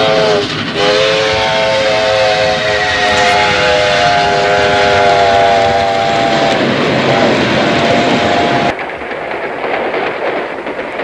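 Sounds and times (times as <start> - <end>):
steam locomotive whistle: 0.0 - 8.7
train running noise: 0.0 - 11.0.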